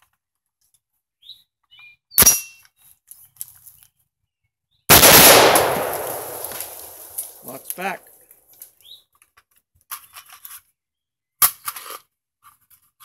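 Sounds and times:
bird chirps: 1.2s - 4.9s, 8.8s - 9.2s
rifle gunshot: 4.9s - 7.5s.

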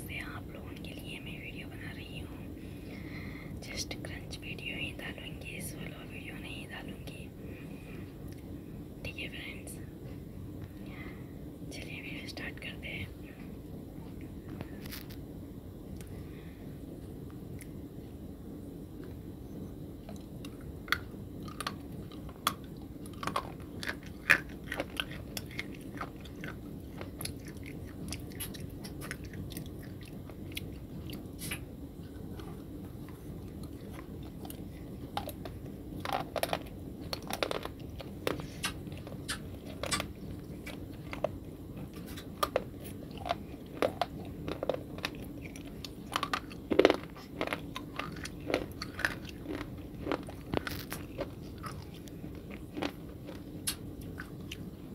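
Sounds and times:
crunchy biting and chewing: 20.1s - 54.7s.

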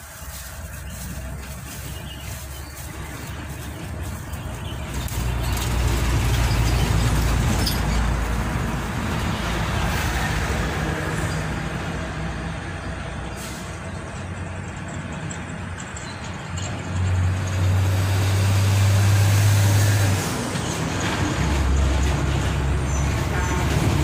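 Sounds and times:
heavy vehicle passing: 0.0s - 24.0s.

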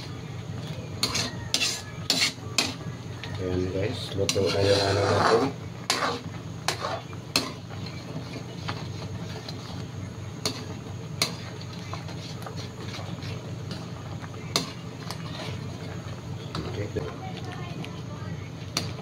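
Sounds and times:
steady low hum: 0.0s - 19.0s
sauce simmering in a pan: 4.5s - 16.8s.

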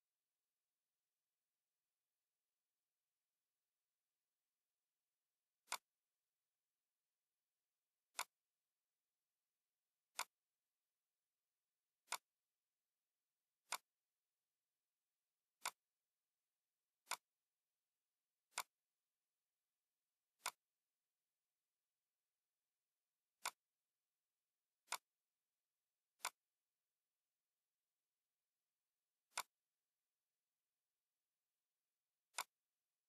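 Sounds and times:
computer mouse clicking: 5.6s - 5.9s, 8.1s - 8.4s, 10.1s - 10.4s, 12.0s - 12.3s, 13.6s - 14.0s, 15.6s - 15.8s, 17.0s - 17.3s, 18.5s - 18.8s, 20.4s - 20.7s, 23.4s - 23.7s, 24.8s - 25.1s, 26.2s - 26.6s, 29.3s - 29.6s, 32.3s - 32.7s.

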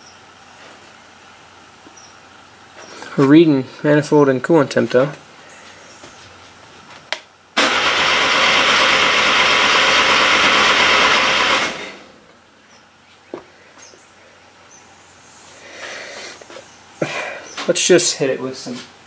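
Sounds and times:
engine cranking without starting: 7.6s - 12.2s.

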